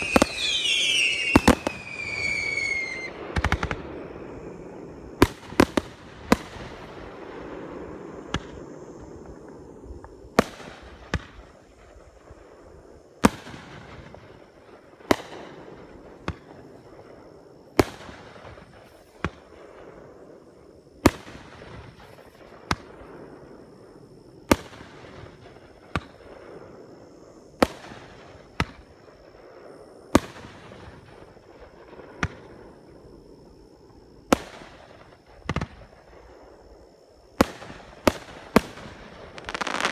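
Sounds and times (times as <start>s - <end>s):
firework shells bursting: 37.5s - 39.9s.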